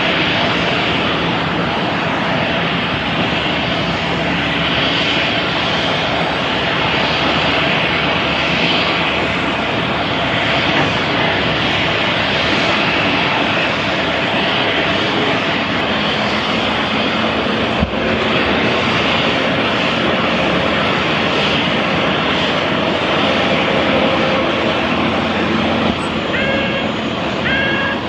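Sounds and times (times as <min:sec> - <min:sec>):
jet engines rushing: 0:00.0 - 0:28.0.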